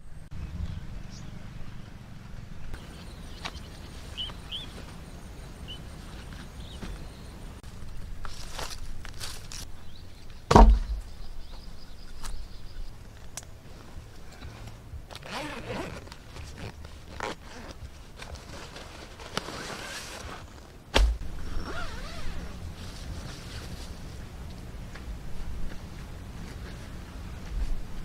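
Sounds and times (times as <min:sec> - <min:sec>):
footsteps on grass: 0:02.7 - 0:10.0, 0:22.0 - 0:28.0
heavy thumps: 0:10.5 - 0:11.2, 0:20.9 - 0:21.3
nylon bags rustling: 0:15.1 - 0:24.2.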